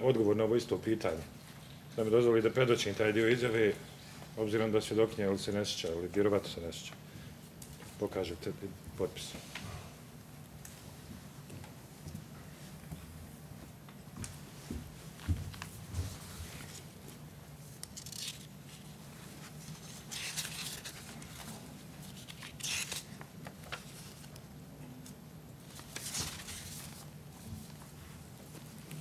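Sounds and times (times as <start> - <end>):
low room hum: 0.0 - 29.0
paper rustling: 15.5 - 24.4, 25.0 - 29.0.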